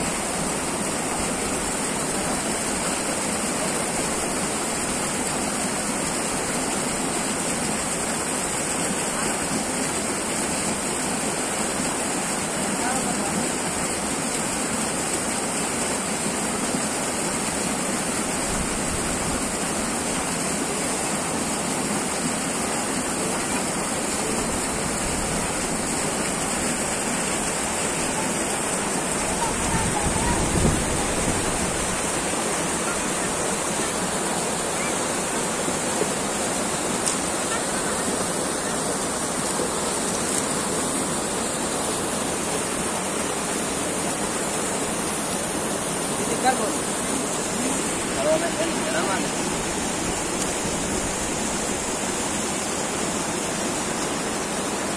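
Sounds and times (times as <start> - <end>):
river water rushing over rocks: 0.0 - 54.9.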